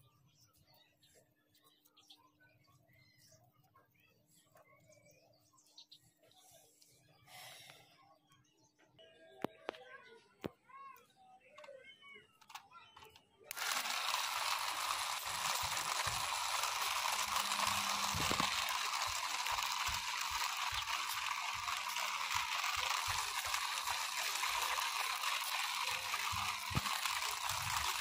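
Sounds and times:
toy motor whirring: 0:12.4 - 0:28.0.

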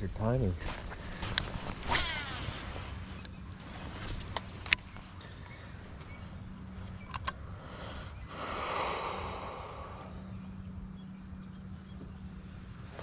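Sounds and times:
small clicks: 0:06.9 - 0:07.4.

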